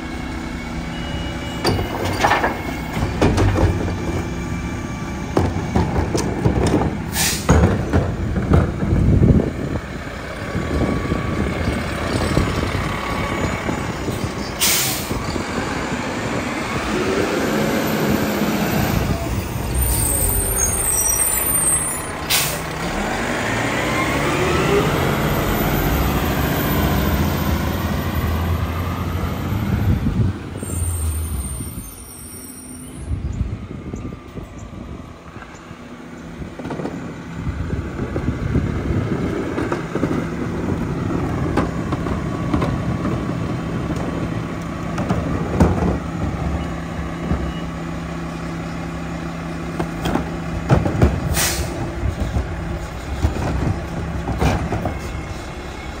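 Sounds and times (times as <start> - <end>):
air brake hisses: 7.1 - 7.5, 14.6 - 15.2, 22.3 - 22.7, 51.3 - 51.8
garbage truck engine revving: 15.0 - 30.2.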